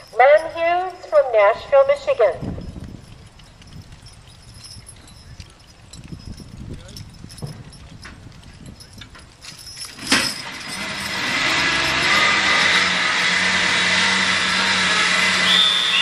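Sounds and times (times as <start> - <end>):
light metal clinks: 0.0 - 13.0
hydraulic pump whining: 9.9 - 16.0.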